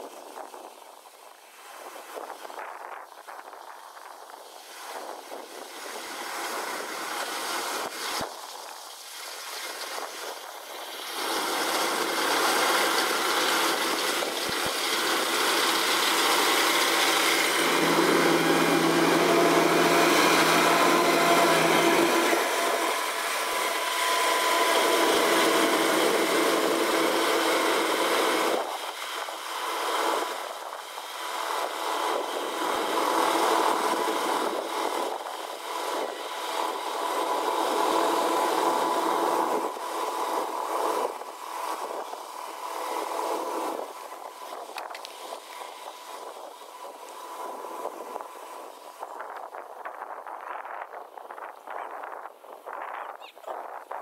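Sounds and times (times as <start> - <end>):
combine harvester clattering: 9.5 - 46.3.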